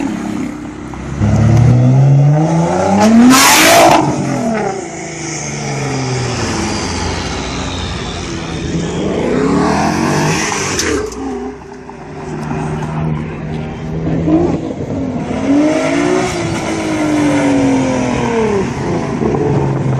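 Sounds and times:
car engines accelerating: 0:00.0 - 0:19.9.

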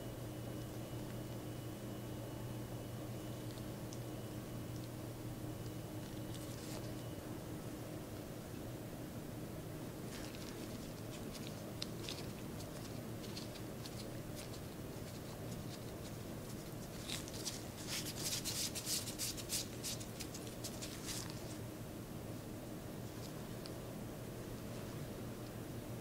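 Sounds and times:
faint low hum: 0:00.0 - 0:26.0
crackly rustling of gloves: 0:05.6 - 0:07.2, 0:10.0 - 0:21.7
gloved hands rolling dough: 0:10.0 - 0:21.6.

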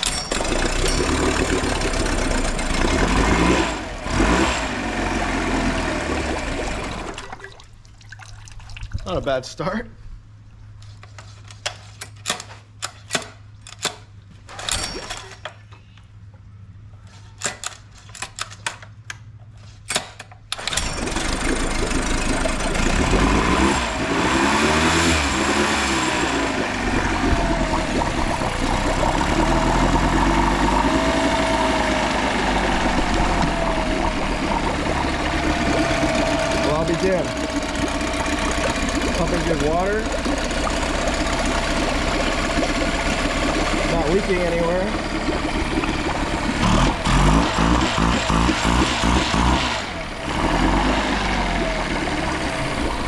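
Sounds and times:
outboard motor running: 0:00.0 - 0:07.6, 0:20.6 - 0:53.0.

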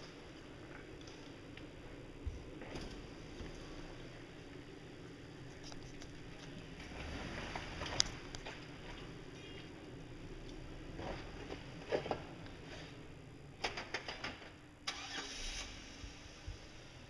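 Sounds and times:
engine low rumble: 0:00.0 - 0:17.0.

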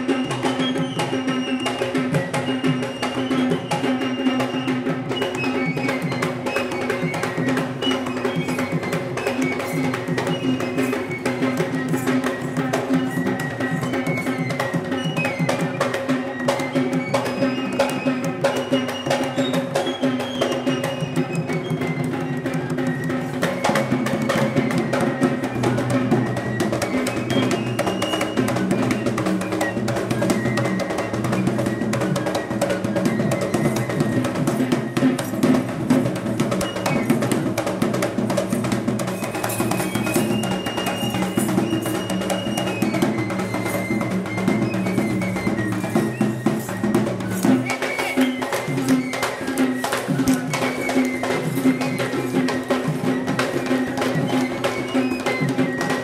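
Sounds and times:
group of drums in fast rhythm: 0:00.0 - 0:56.0
held melodic tone: 0:23.2 - 0:56.0.

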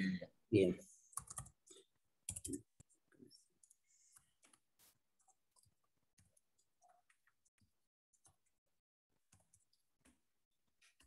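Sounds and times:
keyboard typing: 0:01.1 - 0:04.6, 0:09.2 - 0:10.2.

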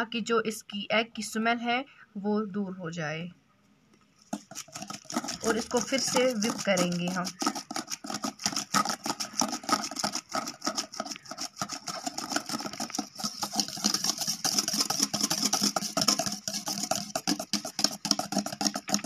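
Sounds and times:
whisk clattering in metal bowl: 0:04.3 - 0:19.0.

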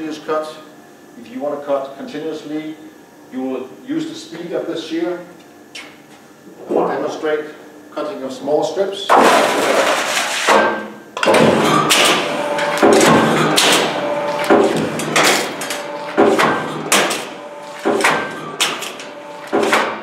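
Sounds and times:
metal shear clacking: 0:11.2 - 0:20.0.

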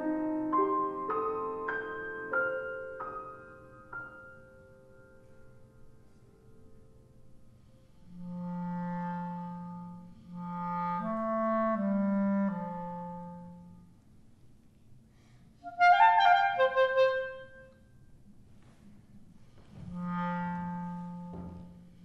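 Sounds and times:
clarinet playing: 0:08.0 - 0:13.9, 0:15.6 - 0:17.8, 0:19.8 - 0:22.0.

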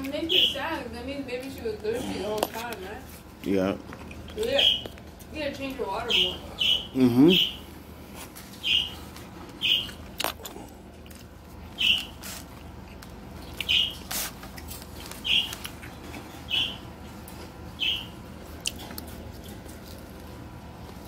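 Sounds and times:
small pet chirping: 0:06.0 - 0:07.6, 0:08.6 - 0:09.0, 0:09.6 - 0:10.0, 0:11.8 - 0:12.2, 0:13.6 - 0:14.0, 0:15.2 - 0:15.6, 0:16.5 - 0:16.8, 0:17.8 - 0:18.2.

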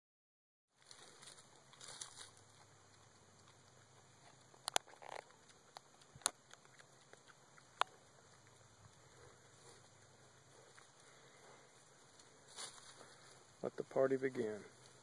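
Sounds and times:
rustling in dry leaves: 0:00.8 - 0:02.6, 0:08.5 - 0:13.8.

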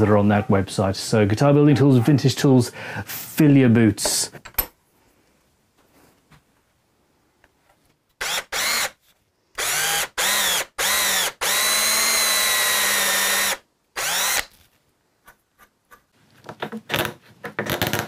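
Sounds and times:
cordless drill boring into wood: 0:08.2 - 0:09.0, 0:09.6 - 0:14.6.

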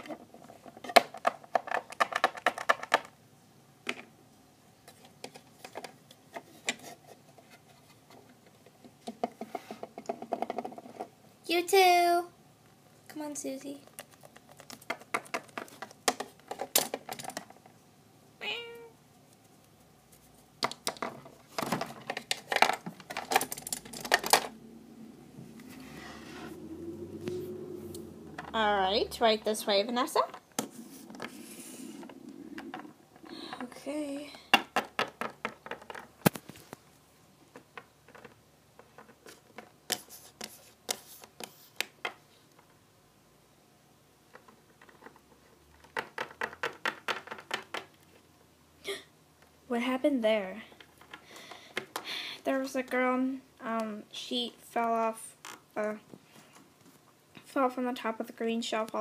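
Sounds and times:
plastic toys clicking and tapping: 0:00.0 - 0:03.2, 0:04.9 - 0:06.9, 0:08.1 - 0:11.1, 0:13.8 - 0:17.7, 0:20.6 - 0:24.5, 0:32.6 - 0:36.4, 0:37.5 - 0:42.8, 0:44.3 - 0:48.2, 0:50.7 - 0:54.0
plastic figurines tapping on table: 0:34.5 - 0:36.1, 0:45.8 - 0:47.9.

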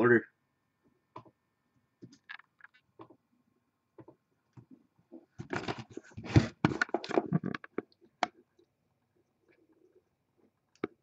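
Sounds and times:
handling rustling and scraping: 0:04.6 - 0:07.9.

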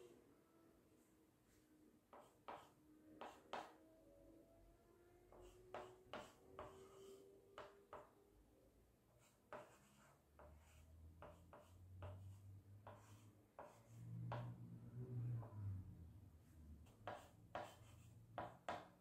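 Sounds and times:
faint low hum: 0:00.0 - 0:18.8
chalk tapping and scratching: 0:02.1 - 0:03.7, 0:05.3 - 0:08.1, 0:09.2 - 0:14.6, 0:16.8 - 0:19.0.

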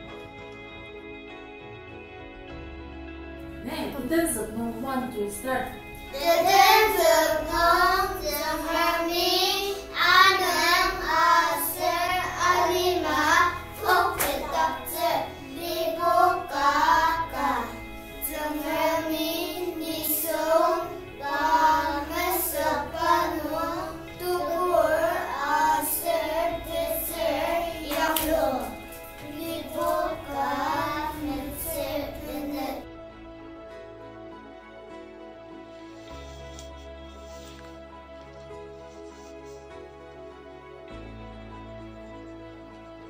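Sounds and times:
children singing: 0:06.1 - 0:32.8.

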